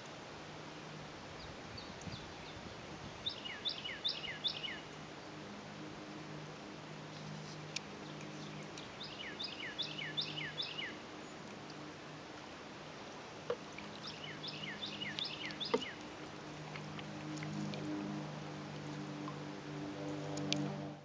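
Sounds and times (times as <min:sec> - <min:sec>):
songbird singing: 0:01.4 - 0:05.4, 0:07.1 - 0:12.0, 0:12.9 - 0:19.4.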